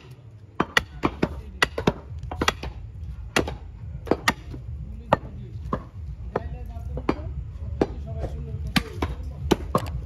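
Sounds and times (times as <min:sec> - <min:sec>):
cleaver chopping on wooden block: 0:00.6 - 0:07.2, 0:08.7 - 0:10.0.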